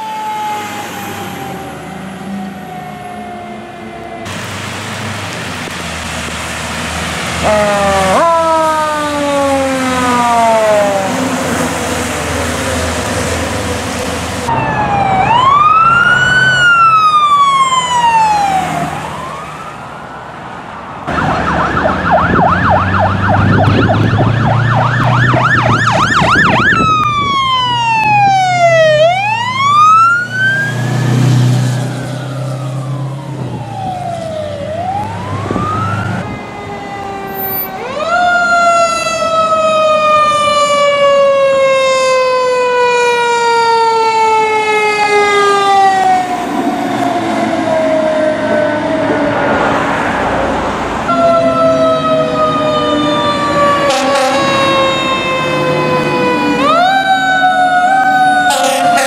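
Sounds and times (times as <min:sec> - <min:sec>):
siren yelp: 0:00.0 - 0:04.4, 0:07.4 - 0:13.7, 0:14.4 - 0:20.4, 0:21.0 - 0:50.3, 0:51.0 - 0:59.0
fire truck sirens wailing: 0:00.0 - 0:59.0
rain hiss on wet road: 0:04.3 - 0:07.1.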